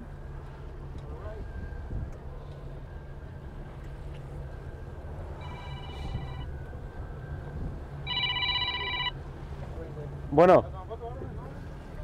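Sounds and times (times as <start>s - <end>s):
boat engine idling: 0.0s - 12.0s
phone ringtone: 5.4s - 6.5s, 8.0s - 9.2s.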